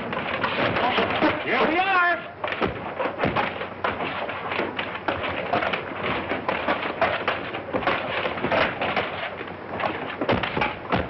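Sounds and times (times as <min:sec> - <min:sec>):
mechanical clatter of knocks: 0:02.4 - 0:11.0.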